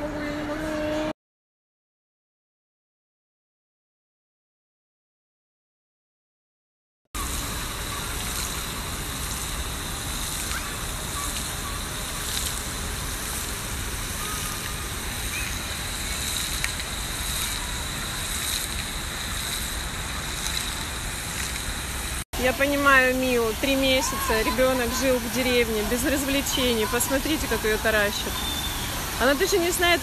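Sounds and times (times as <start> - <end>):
even hiss: 7.2 - 30.0.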